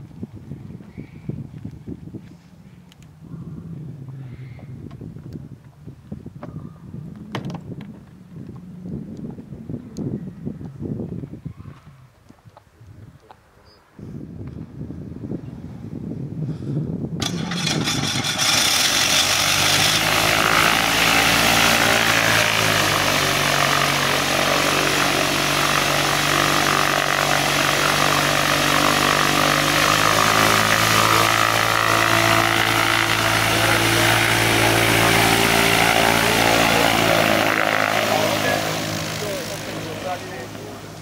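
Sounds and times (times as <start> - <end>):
propeller aircraft engine taxiing: 17.2 - 41.0.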